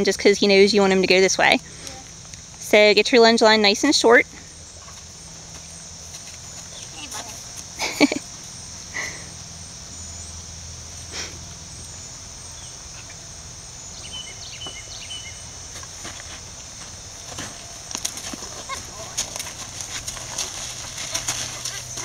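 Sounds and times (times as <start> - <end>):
high-pitched insect chorus: 0.0 - 22.0.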